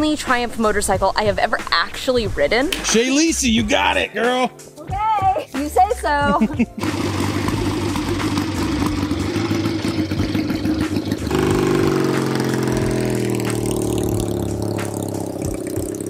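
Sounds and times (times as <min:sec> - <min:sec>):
motorcycle engine running: 0:06.8 - 0:16.0.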